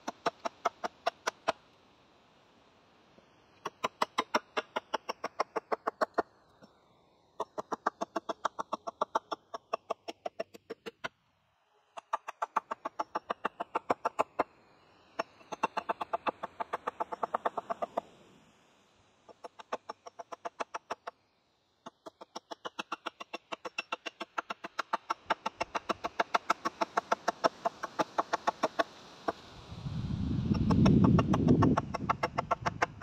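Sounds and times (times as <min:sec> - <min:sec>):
hatchet chopping wood: 0:03.6 - 0:06.2.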